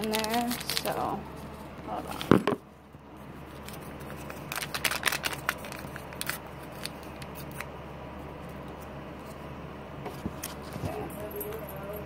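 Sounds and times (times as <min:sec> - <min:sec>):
packet clicking and rustling: 0:00.0 - 0:01.1, 0:03.5 - 0:07.7
low steady hum: 0:00.0 - 0:12.0.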